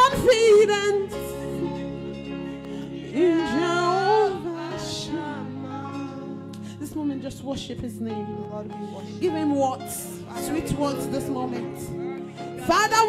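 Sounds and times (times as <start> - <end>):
women singing gospel song: 0.0 - 8.0, 10.3 - 12.0, 12.6 - 13.0
instrumental backing music: 0.0 - 13.0.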